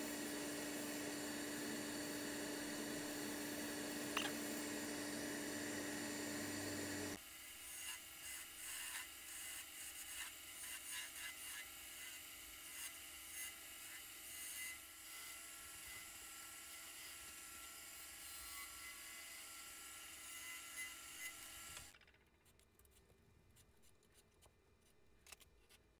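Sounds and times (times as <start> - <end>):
tool scraping spinning wood: 0.0 - 7.2
wood lathe whine: 0.0 - 7.2.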